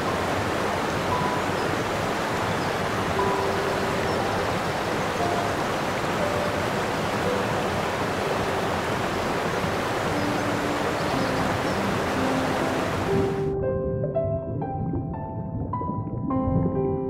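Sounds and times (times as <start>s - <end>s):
rushing water: 0.0s - 13.6s.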